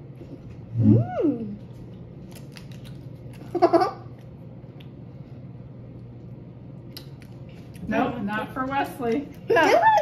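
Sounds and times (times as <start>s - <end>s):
faint low hum: 0.0s - 10.0s
child humming sliding mmm: 0.7s - 1.6s
child giggling: 3.5s - 4.1s.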